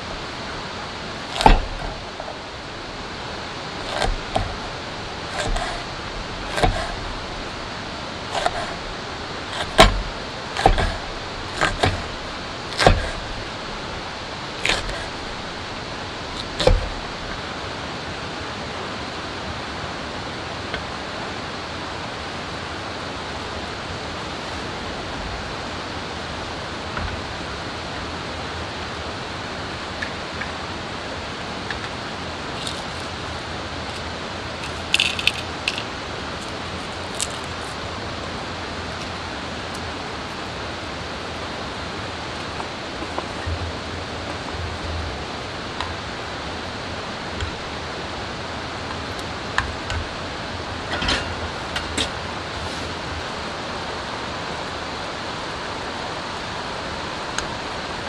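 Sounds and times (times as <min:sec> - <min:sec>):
rain hissing: 0:00.0 - 0:58.0
hatchet chopping on wooden board: 0:01.3 - 0:02.0, 0:03.8 - 0:05.9, 0:06.5 - 0:07.0, 0:08.3 - 0:08.8, 0:09.5 - 0:13.3, 0:14.6 - 0:15.1, 0:16.4 - 0:17.0.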